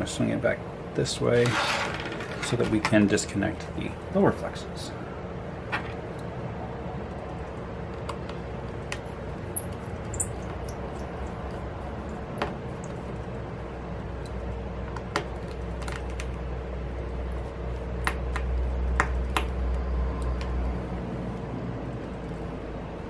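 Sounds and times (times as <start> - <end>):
steady low hum: 0.0 - 23.0
light clicks and taps of small parts: 20.2 - 20.6.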